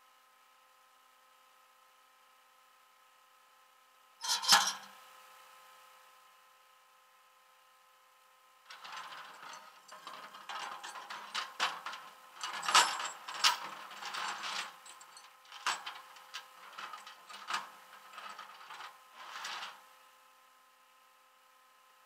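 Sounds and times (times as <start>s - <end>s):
chain rattling and clanking: 4.2s - 4.9s, 8.7s - 19.8s.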